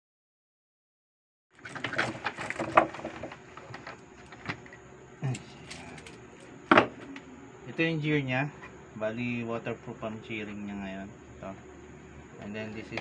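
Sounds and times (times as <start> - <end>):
thump on a table: 6.7 - 7.0.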